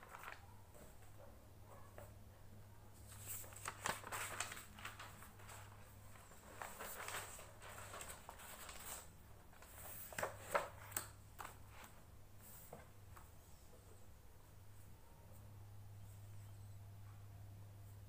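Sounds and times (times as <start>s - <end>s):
notebook pages flipping: 0.0s - 1.1s, 3.0s - 13.3s.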